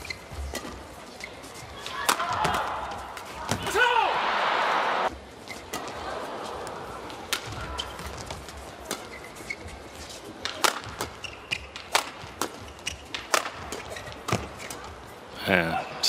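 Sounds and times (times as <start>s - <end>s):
rackets striking shuttlecock: 10.4s - 14.8s.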